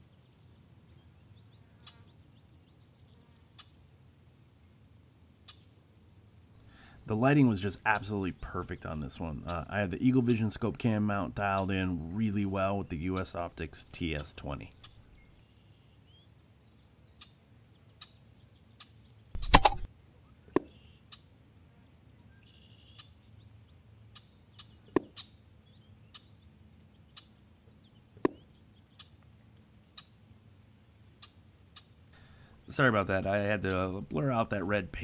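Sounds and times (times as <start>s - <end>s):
air rifle shot: 19.4s - 19.9s
sharp knock: 19.4s - 19.9s
bird chirps: 22.1s - 29.2s.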